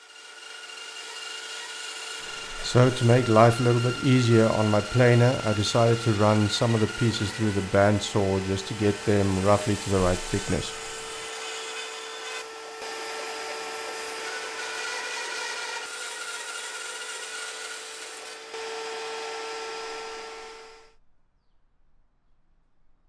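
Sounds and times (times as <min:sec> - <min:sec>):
bandsaw cutting wood: 0:00.0 - 0:20.9
motor hum: 0:01.0 - 0:14.2, 0:18.6 - 0:20.9.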